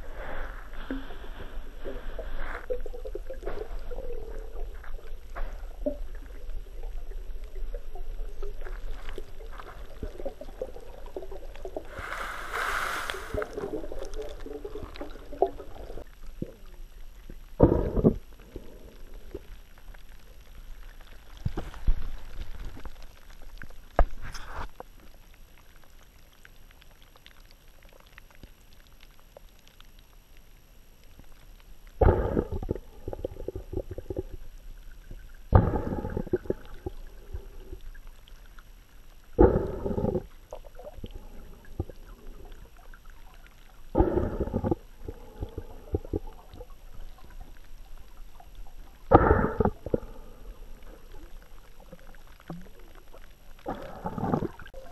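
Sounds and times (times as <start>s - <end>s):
muffled bubbling breath underwater: 0.0s - 19.7s, 32.0s - 38.3s, 39.3s - 54.9s.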